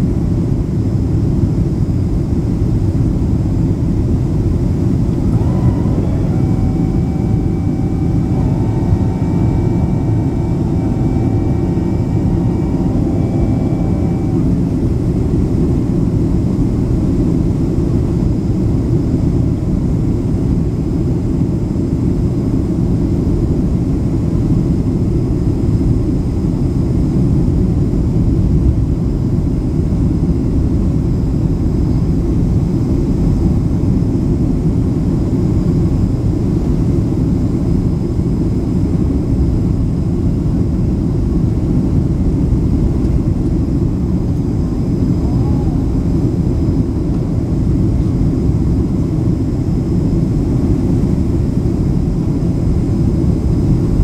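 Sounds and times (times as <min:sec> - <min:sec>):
airplane cabin engine roar: 0:00.0 - 0:54.0
faint tones: 0:04.8 - 0:16.0, 0:44.6 - 0:46.5.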